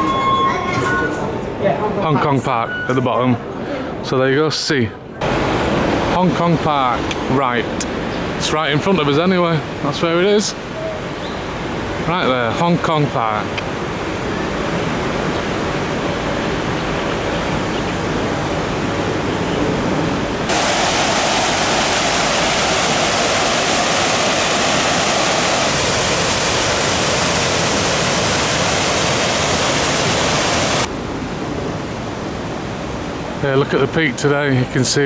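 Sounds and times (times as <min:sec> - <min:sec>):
outdoor hiss: 0:20.4 - 0:30.9
fountain water rushing: 0:20.4 - 0:34.6.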